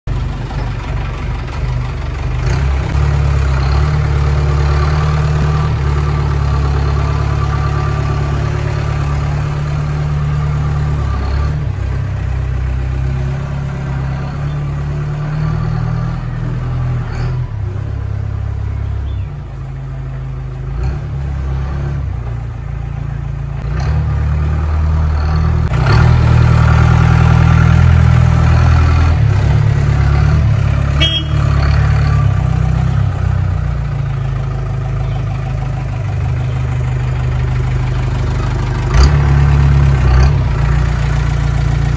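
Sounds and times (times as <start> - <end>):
jeep engine droning: 0.1 - 41.9.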